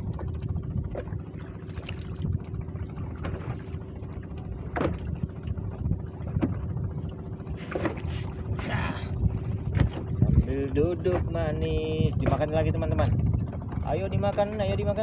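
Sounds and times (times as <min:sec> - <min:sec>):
waves lapping against boat hull: 0:00.0 - 0:15.0
wind buffeting microphone: 0:00.0 - 0:15.0.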